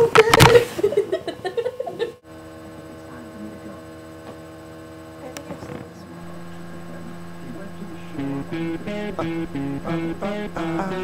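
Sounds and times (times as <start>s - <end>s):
electrical hum: 2.3s - 11.0s
voice: 5.2s - 11.0s.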